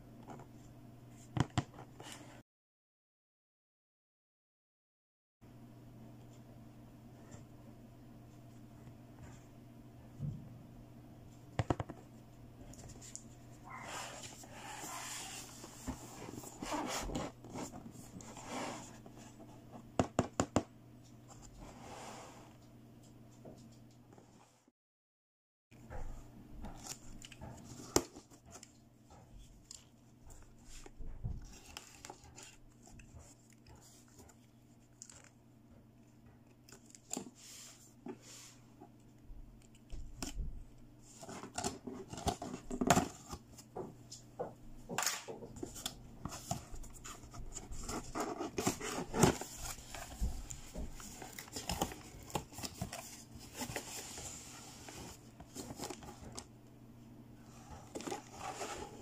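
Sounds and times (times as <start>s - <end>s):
cardboard rustling: 12.7s - 19.6s, 45.6s - 56.5s, 57.5s - 59.0s.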